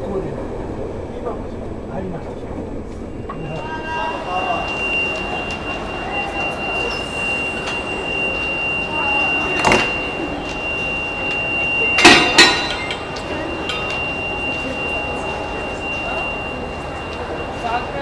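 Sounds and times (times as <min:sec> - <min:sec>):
thin high whine: 0:02.8 - 0:18.0
metal coupling clanks: 0:12.0 - 0:13.1.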